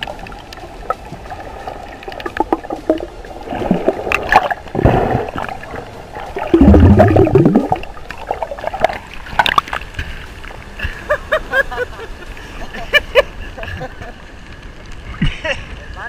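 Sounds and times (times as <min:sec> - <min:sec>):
gurgling rushes of bubbles: 0:00.0 - 0:09.8
underwater bubbling and turbulence: 0:00.0 - 0:16.0.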